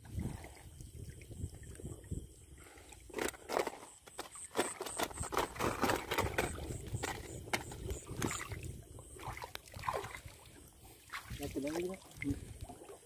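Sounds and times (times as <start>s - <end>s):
water splashing: 5.3s - 13.0s.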